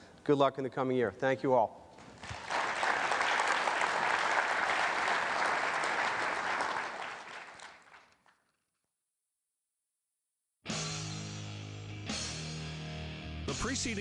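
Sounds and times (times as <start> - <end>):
audience applauding: 2.2 - 8.4.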